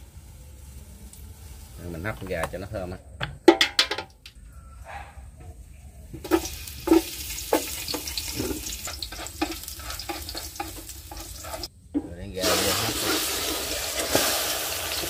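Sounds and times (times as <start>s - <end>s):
garlic sizzling in hot oil: 0.0s - 2.6s, 6.2s - 11.7s, 12.4s - 15.0s
utensil scraping and knocking: 6.2s - 13.3s.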